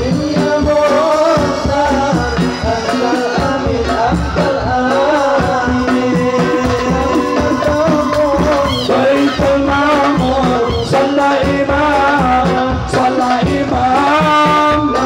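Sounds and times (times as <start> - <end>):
band playing: 0.0 - 15.0
person singing: 0.0 - 15.0
steady drum beat: 0.0 - 15.0.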